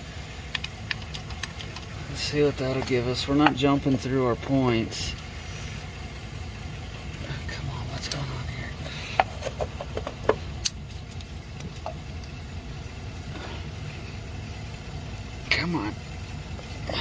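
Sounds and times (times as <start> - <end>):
steady low hum: 0.0 - 17.0
sharp clicks and taps: 0.5 - 1.9.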